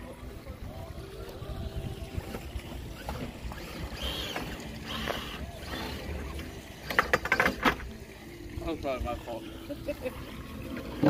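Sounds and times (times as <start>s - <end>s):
wind buffeting microphone: 0.4s - 4.1s
sharp clicks and knocks: 6.8s - 7.8s.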